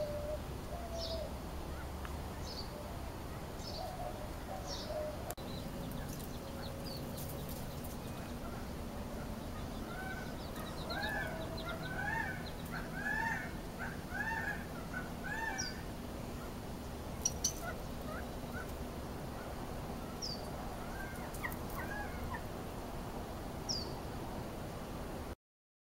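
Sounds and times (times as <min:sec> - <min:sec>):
quail calling: 0:08.1 - 0:22.5.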